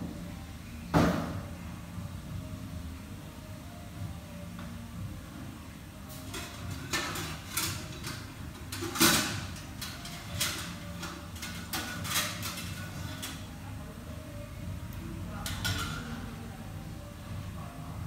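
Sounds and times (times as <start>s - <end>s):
steady low hum: 0.0s - 18.0s
kitchen clatters and knocks: 6.1s - 13.5s, 15.4s - 16.3s.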